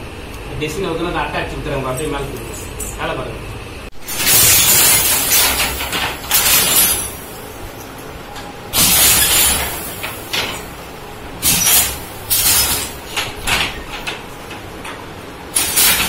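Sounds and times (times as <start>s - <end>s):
handloom clattering: 4.0s - 7.4s, 8.7s - 10.8s, 11.4s - 16.0s.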